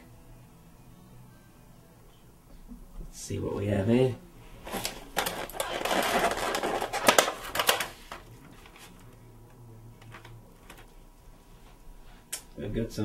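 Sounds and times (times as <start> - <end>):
plastic container crinkling: 4.7 - 8.2.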